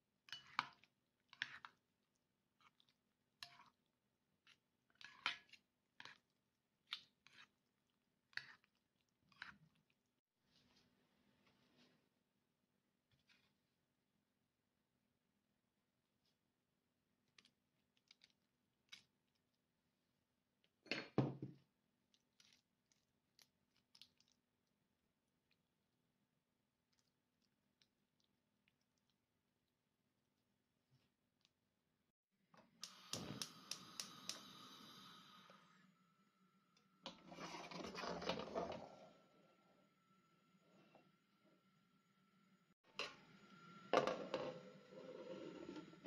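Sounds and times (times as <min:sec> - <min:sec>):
bowl and spoon clicking and scraping: 0:00.3 - 0:01.8.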